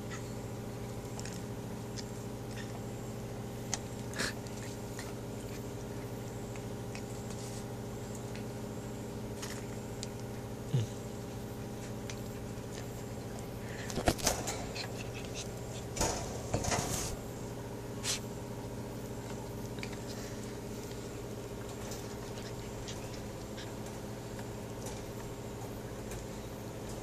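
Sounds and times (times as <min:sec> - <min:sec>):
steady hum: 0:00.0 - 0:27.0
puppies clicking on concrete: 0:00.1 - 0:07.4, 0:09.3 - 0:10.6, 0:11.7 - 0:16.4, 0:19.1 - 0:27.0.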